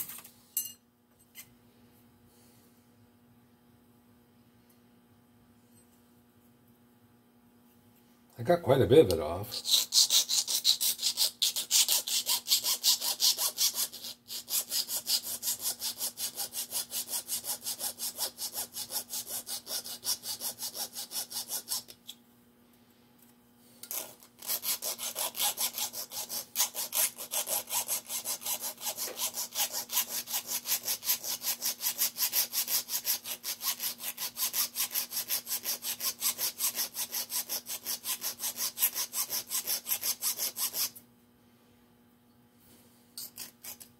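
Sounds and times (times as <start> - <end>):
faint steady hum: 0.0 - 43.9
file scraping metal: 9.4 - 22.0, 23.8 - 41.0, 43.2 - 43.9.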